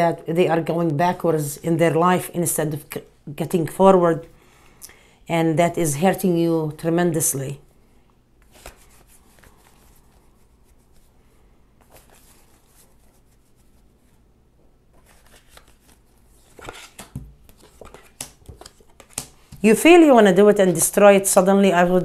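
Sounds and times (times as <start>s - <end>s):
cards being shuffled: 8.4s - 11.1s, 11.8s - 14.2s, 14.9s - 19.7s
cards snapping down: 16.6s - 19.6s.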